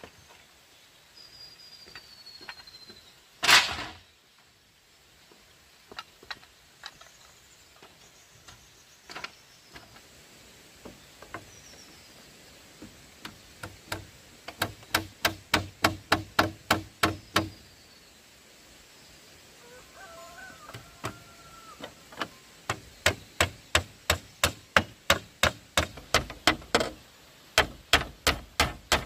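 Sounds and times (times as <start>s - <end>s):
light taps on bamboo: 10.8s - 11.6s, 12.8s - 17.5s
hand tool striking bamboo: 13.2s - 17.6s, 22.2s - 27.0s, 27.6s - 29.0s.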